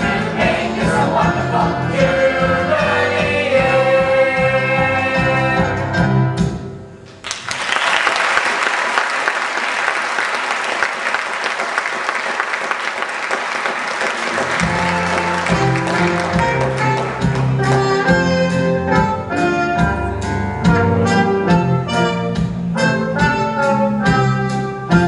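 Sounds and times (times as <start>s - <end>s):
choir and band performing: 0.0s - 6.8s, 14.3s - 25.0s
audience applause: 7.2s - 17.7s.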